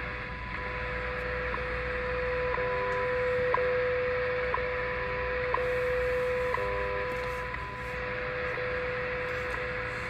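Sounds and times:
shortwave static hiss: 0:00.0 - 0:10.0
steady time signal tone: 0:00.0 - 0:10.0.

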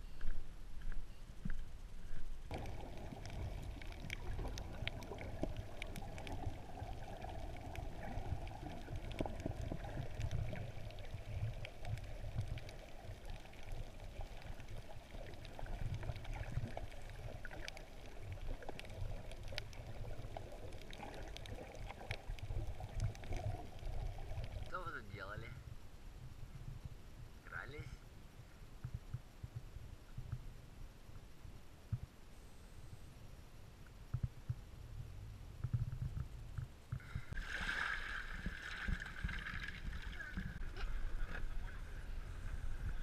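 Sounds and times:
small underwater clicks: 0:00.2 - 0:24.8
underwater rushing water: 0:02.5 - 0:25.2, 0:37.0 - 0:43.0.

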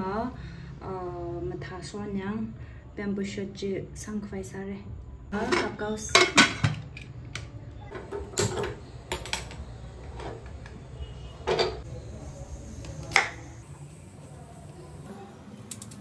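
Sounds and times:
dishes and utensils clinking: 0:05.4 - 0:07.0, 0:07.9 - 0:11.9.

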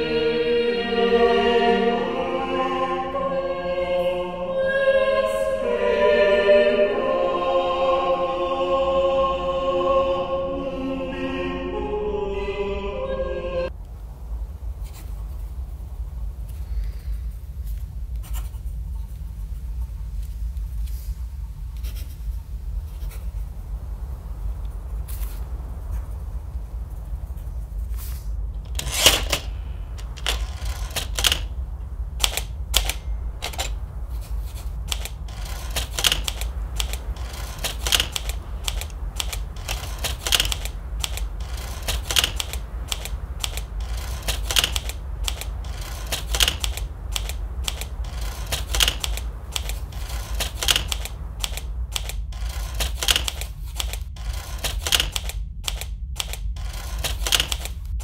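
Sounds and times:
low hum: 0:00.0 - 0:58.0
typewriter key strikes: 0:28.8 - 0:31.5, 0:32.2 - 0:33.8, 0:34.9 - 0:57.8.

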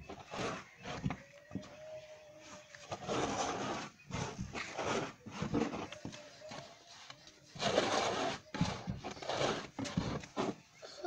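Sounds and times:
stick scraping porridge in metal pot: 0:00.0 - 0:01.7, 0:02.7 - 0:06.7, 0:07.5 - 0:10.7.

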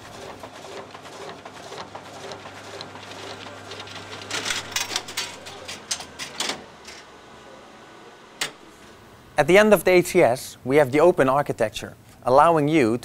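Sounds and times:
sheets feeding through printer: 0:00.0 - 0:09.2
printer humming: 0:00.0 - 0:10.4.

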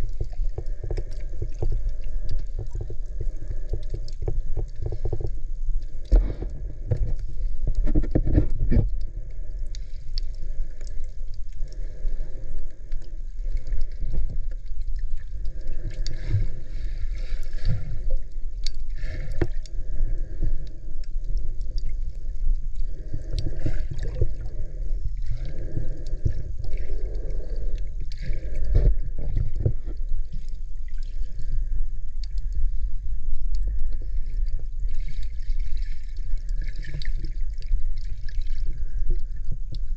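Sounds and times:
muffled underwater water sloshing: 0:00.0 - 0:39.9.

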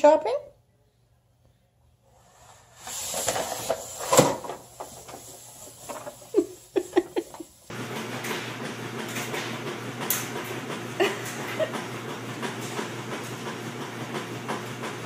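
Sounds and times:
treadmill motor humming and rattling: 0:02.9 - 0:15.0.

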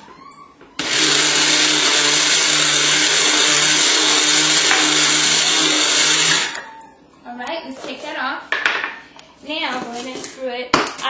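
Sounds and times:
blender motor grinding powder: 0:00.8 - 0:06.7.

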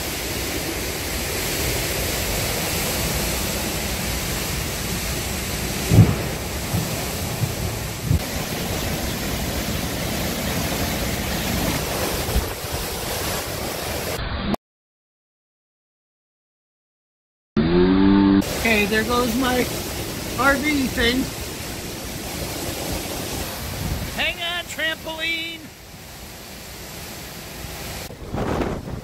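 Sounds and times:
wind buffeting microphone: 0:00.0 - 0:13.4, 0:21.3 - 0:24.2, 0:27.9 - 0:29.0
driving rain: 0:00.0 - 0:14.2, 0:18.4 - 0:29.0
strong wind: 0:00.0 - 0:14.3, 0:17.6 - 0:24.5, 0:25.2 - 0:29.0
loud low thump: 0:05.9 - 0:08.2.

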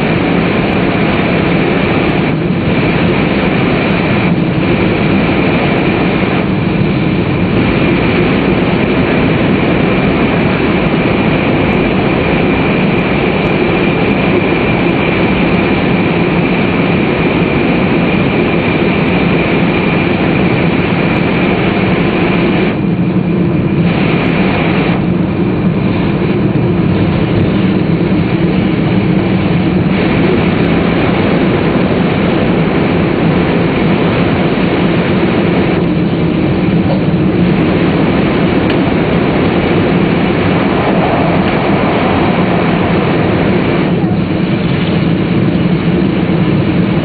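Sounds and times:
constant hum: 0:00.0 - 0:47.0
train running noise inside car: 0:00.0 - 0:47.0.

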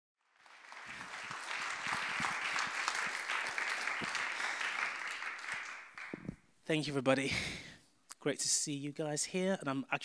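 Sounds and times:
audience applauding: 0:00.2 - 0:06.4.

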